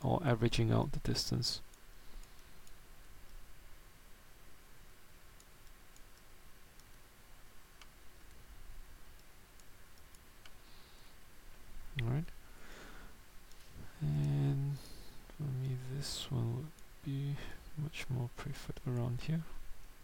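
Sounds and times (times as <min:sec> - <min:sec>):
low steady hiss: 0:00.0 - 0:20.0
faint computer mouse clicks: 0:01.7 - 0:03.4, 0:05.4 - 0:07.0.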